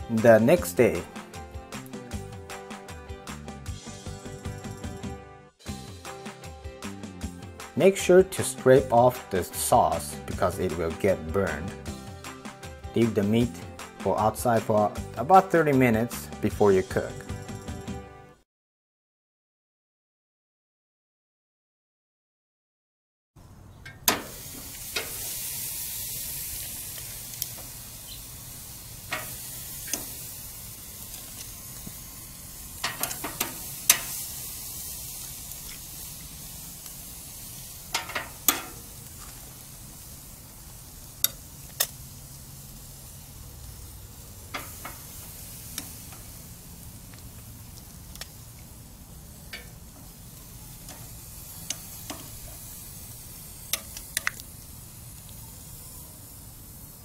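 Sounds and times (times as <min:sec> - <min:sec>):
meat sizzling on a grill: 0:00.0 - 0:17.9, 0:24.0 - 0:57.0
metal tongs clicking on grate: 0:23.8 - 0:25.2, 0:29.1 - 0:30.2, 0:32.8 - 0:34.2, 0:37.9 - 0:38.8, 0:41.2 - 0:42.0, 0:44.5 - 0:45.1, 0:45.7 - 0:46.2, 0:47.1 - 0:48.4, 0:49.5 - 0:50.1, 0:50.8 - 0:52.6, 0:53.7 - 0:54.5.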